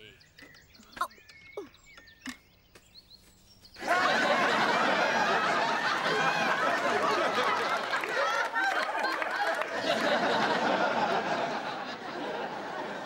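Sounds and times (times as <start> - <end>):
audience laughing: 3.8 - 13.0.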